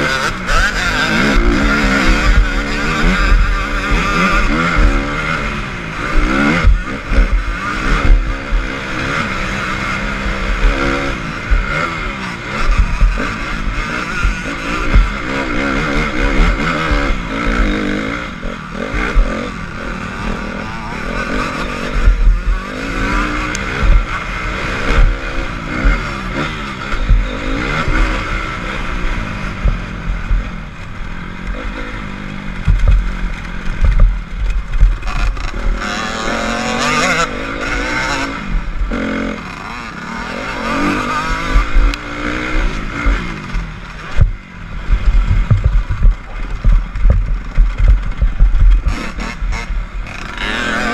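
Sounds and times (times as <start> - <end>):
dirt bike engine revving: 0.0 - 50.9
low thumps: 21.9 - 22.6, 23.2 - 24.2, 26.9 - 28.3, 29.5 - 31.2, 32.5 - 35.9, 42.7 - 50.0.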